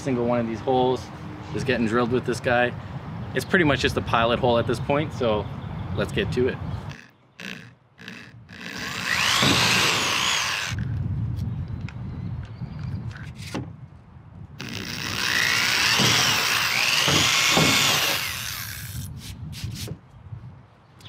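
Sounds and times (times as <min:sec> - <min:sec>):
cordless drill whining: 0:06.9 - 0:11.0, 0:14.6 - 0:19.1.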